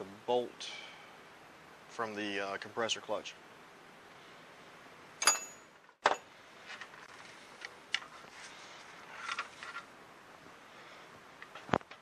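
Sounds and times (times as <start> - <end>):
metal tools clinking: 5.2 - 6.2.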